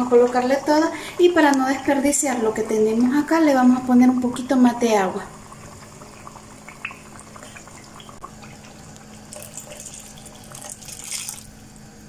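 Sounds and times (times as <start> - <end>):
water splashing into pan: 5.8 - 11.6.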